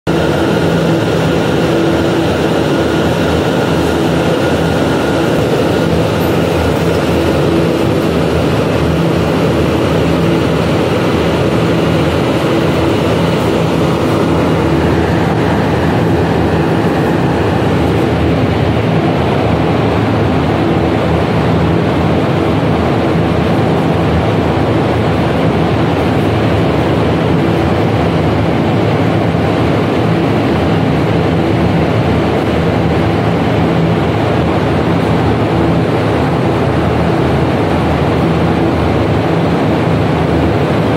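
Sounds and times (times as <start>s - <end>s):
machine drone: 0.0s - 40.9s
rushing air: 0.1s - 31.7s.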